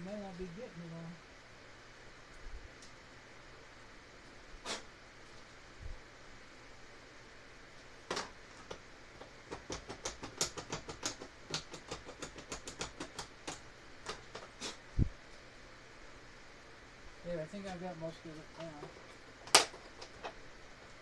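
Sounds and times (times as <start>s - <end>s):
screwdriver scratching wood: 9.5s - 14.8s.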